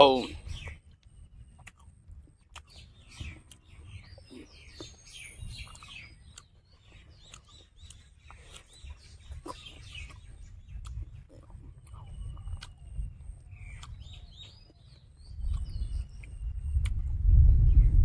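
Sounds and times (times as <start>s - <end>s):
birds chirping: 0.0s - 18.0s
low rumble: 15.2s - 18.0s.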